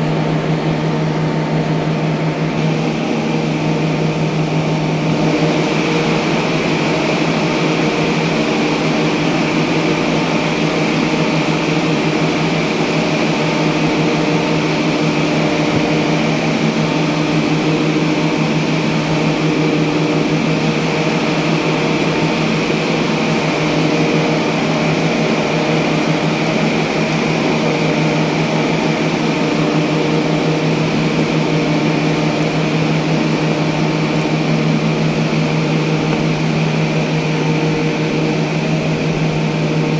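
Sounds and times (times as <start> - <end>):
machine drone with hiss: 0.0 - 39.9.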